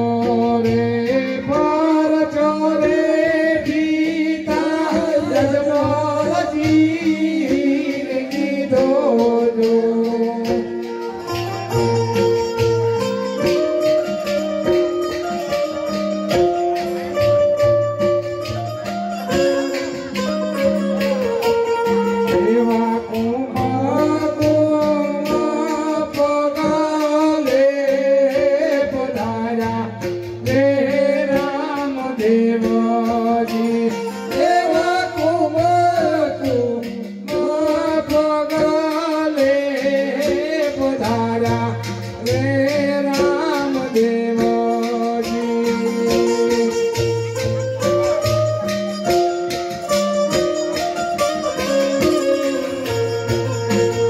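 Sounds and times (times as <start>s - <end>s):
person singing: 0.0s - 12.0s, 18.5s - 49.2s
held instrumental notes: 0.0s - 54.0s
jingling percussion: 0.0s - 54.0s.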